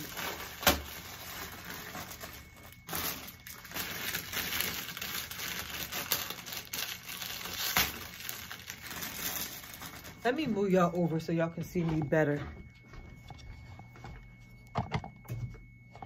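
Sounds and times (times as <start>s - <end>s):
plastic bag crinkling: 0.0s - 12.1s.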